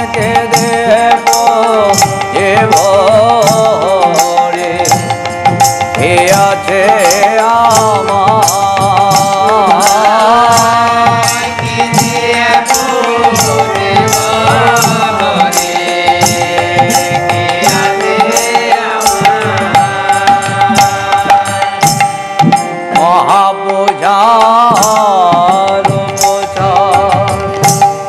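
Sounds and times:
hand drums steady beat: 0.0s - 28.0s
harmonium held reed tones: 0.0s - 28.0s
group voices singing: 11.0s - 21.7s.

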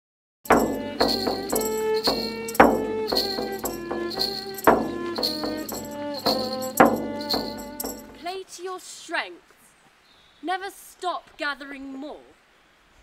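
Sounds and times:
jingling tambourine-like percussion: 0.5s - 8.2s.

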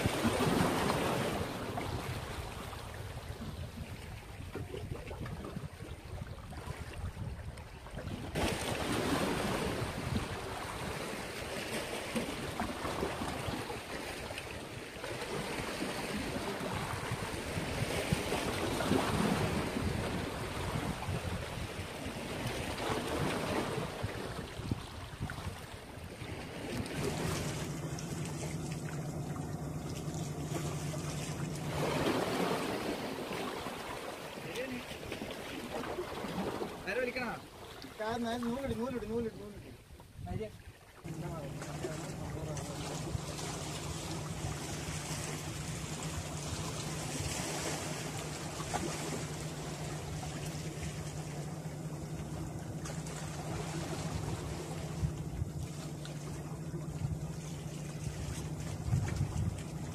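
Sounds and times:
waves splashing against rocks: 0.0s - 59.9s
wind noise on microphone: 1.8s - 10.6s, 16.6s - 25.7s, 58.2s - 59.9s
low hum: 25.8s - 34.3s, 41.1s - 59.9s.

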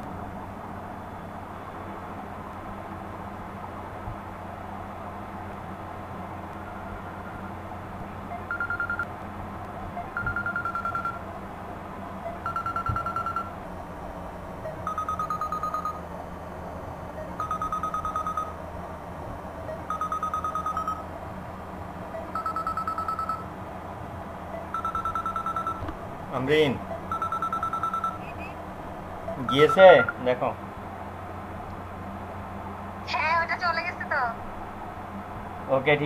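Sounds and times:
low hum: 0.0s - 35.9s
electronic telephone ringing: 8.4s - 9.1s, 10.1s - 11.2s, 12.4s - 13.6s, 14.7s - 16.0s, 17.4s - 18.6s, 19.9s - 21.1s, 22.2s - 23.5s, 24.6s - 25.8s, 27.0s - 28.4s, 29.3s - 30.2s.

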